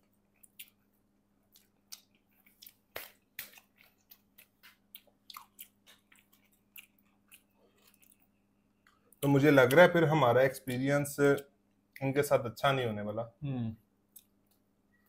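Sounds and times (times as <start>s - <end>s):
chewing pizza: 0.0s - 9.9s.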